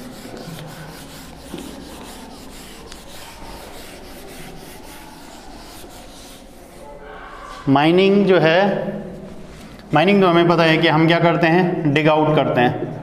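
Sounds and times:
eraser rubbing on whiteboard: 0.0s - 7.7s.

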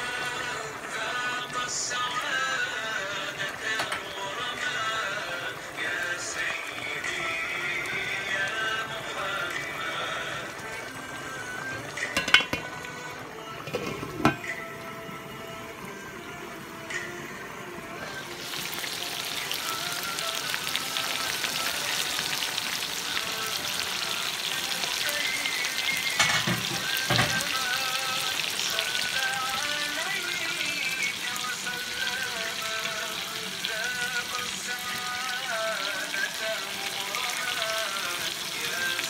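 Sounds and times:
curry sizzling in frying pan: 0.0s - 39.0s.

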